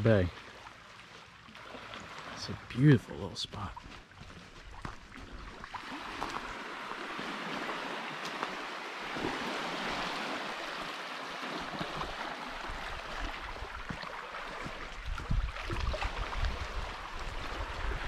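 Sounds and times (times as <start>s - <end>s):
surf washing along shore: 5.6s - 18.0s
wind buffeting microphone: 11.8s - 18.0s.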